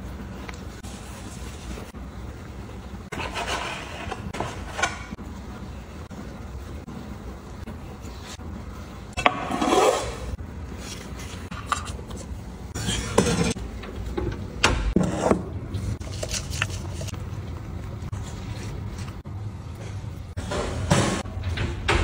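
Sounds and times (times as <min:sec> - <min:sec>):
dough rubbing and scraping: 0:00.0 - 0:02.0, 0:03.1 - 0:05.2, 0:09.5 - 0:13.6, 0:15.0 - 0:19.3.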